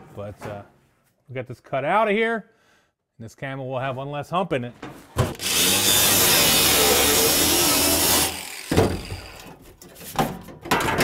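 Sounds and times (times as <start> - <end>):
angle grinder cutting sheet steel: 5.4 - 9.6.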